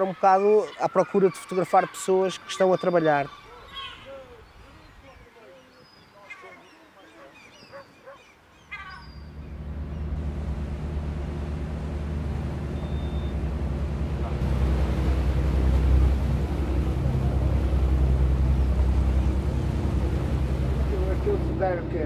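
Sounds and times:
boat engine droning: 8.7s - 22.0s.

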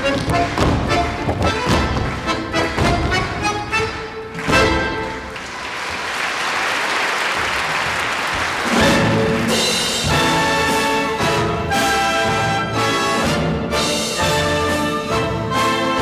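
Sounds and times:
orchestral music with brass: 0.0s - 5.4s, 8.5s - 16.0s
audience applause: 4.3s - 9.5s.

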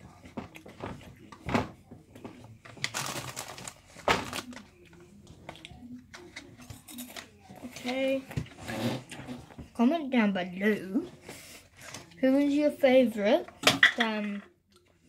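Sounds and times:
object rustling and crinkling: 0.0s - 9.8s.

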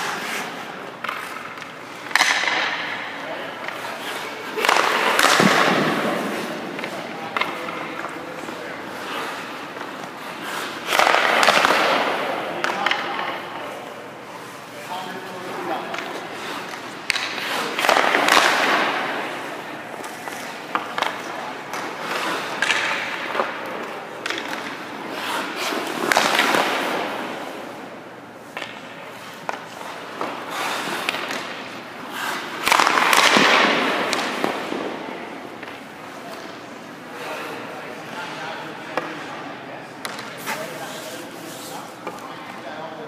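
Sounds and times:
skate blades scraping ice: 0.0s - 38.4s, 40.1s - 42.3s
stick and puck clacks: 0.0s - 42.8s.

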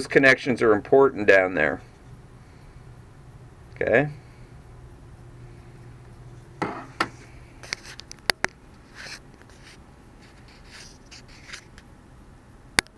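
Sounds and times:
brushing scrapes: 8.8s - 11.7s.

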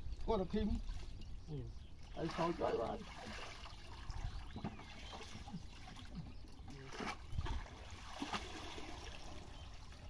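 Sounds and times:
mud and water sloshing: 0.1s - 10.0s
short splashes: 2.1s - 9.6s.

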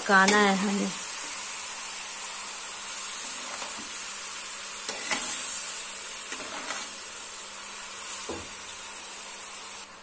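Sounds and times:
high hiss from cooking pan: 0.0s - 10.0s
metal spatula scraping a pan: 4.8s - 7.0s.

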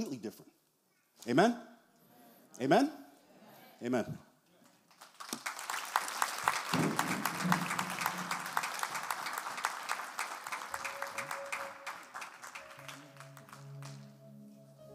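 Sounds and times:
congregation clapping: 4.6s - 14.2s
music with held notes: 10.7s - 14.9s.

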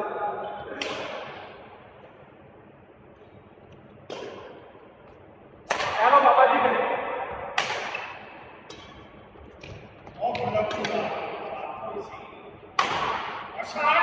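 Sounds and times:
racket hitting shuttlecock: 0.8s - 1.4s, 4.0s - 4.7s, 5.7s - 6.0s, 7.5s - 11.2s, 12.8s - 13.5s.

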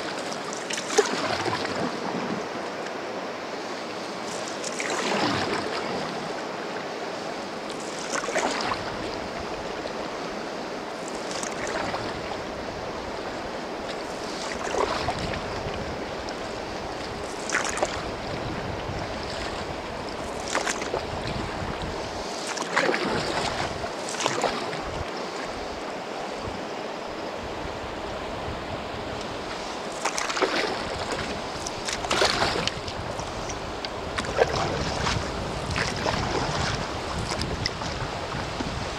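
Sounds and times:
paddle splashing into water: 0.0s - 2.4s, 4.2s - 6.3s, 7.7s - 9.6s, 11.0s - 12.6s, 13.8s - 25.7s, 29.2s - 38.9s
river rushing: 0.0s - 38.9s.

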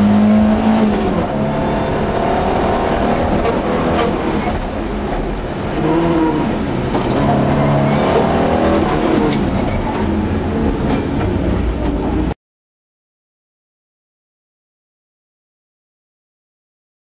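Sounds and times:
car engine revving: 0.0s - 12.3s.

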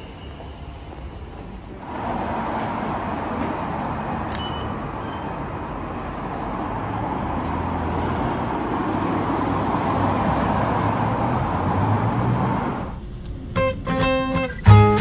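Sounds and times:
vehicle rumble and hiss: 0.0s - 14.0s.

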